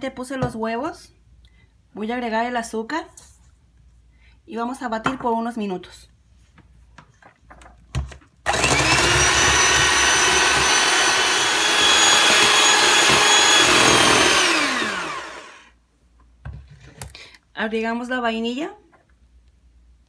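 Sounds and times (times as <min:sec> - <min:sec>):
electric mixer whining: 0:08.5 - 0:15.7.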